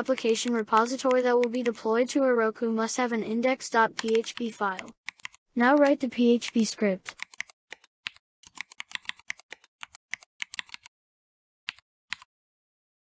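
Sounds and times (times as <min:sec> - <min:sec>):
typing on keyboard: 0:00.0 - 0:01.8, 0:04.0 - 0:10.9, 0:11.7 - 0:12.3.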